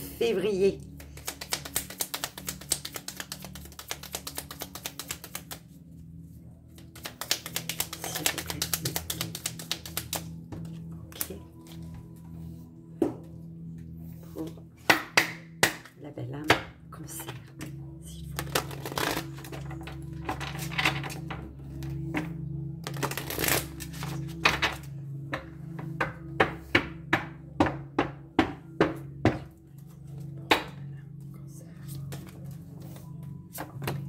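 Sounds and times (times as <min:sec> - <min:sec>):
background music: 0:00.0 - 0:34.0
cards rustling: 0:01.0 - 0:05.6, 0:06.7 - 0:11.8, 0:18.3 - 0:19.8, 0:22.8 - 0:24.7.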